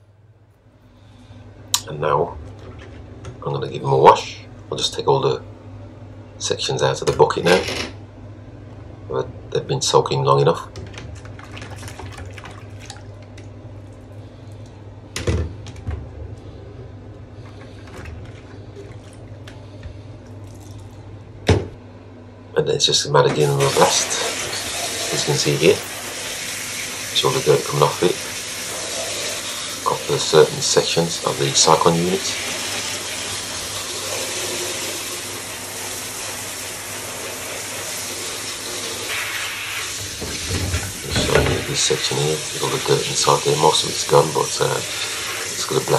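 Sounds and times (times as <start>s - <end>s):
steady low hum: 0.0s - 35.6s
water splashing: 11.1s - 14.0s, 17.4s - 19.6s
shower spray on plastic: 23.4s - 45.9s.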